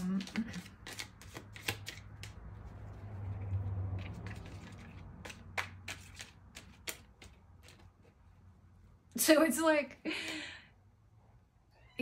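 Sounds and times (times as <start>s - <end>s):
cards clicking and tapping: 0.0s - 2.6s, 3.3s - 8.1s.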